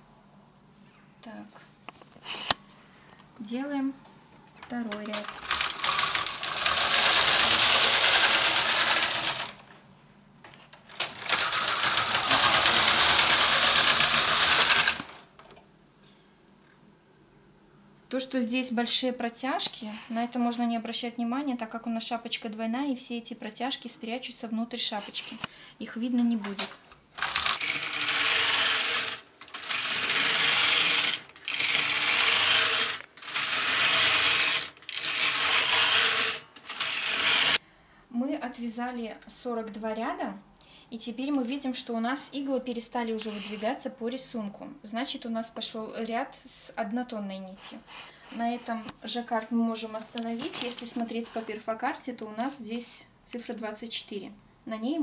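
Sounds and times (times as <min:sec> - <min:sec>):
knitting machine carriage passing: 0:05.1 - 0:09.6, 0:10.9 - 0:15.2, 0:27.2 - 0:37.6.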